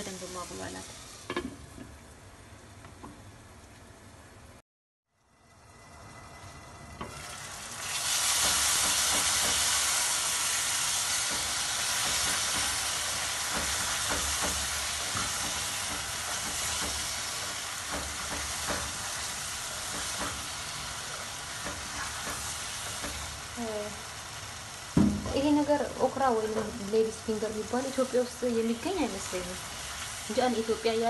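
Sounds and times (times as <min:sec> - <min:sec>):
sauce sizzling in frying pan: 0:00.0 - 0:04.0, 0:05.2 - 0:31.0
wooden spoon scraping a pan: 0:21.1 - 0:23.3.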